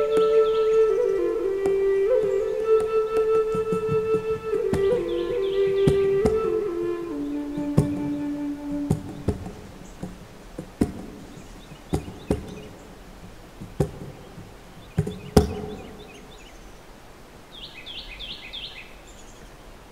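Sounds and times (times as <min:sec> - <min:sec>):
bird chirping: 0:00.0 - 0:19.7
faint background hiss: 0:00.0 - 0:19.9
sharp knocks with ringing tone: 0:07.6 - 0:08.2, 0:08.8 - 0:16.0.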